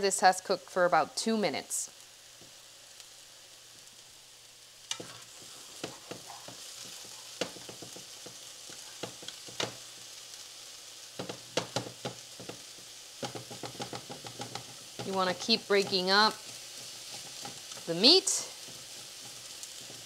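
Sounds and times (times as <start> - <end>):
meat sizzling in oil: 0.0 - 20.0
utensil scraping and tapping pan: 4.9 - 10.0, 11.2 - 20.0.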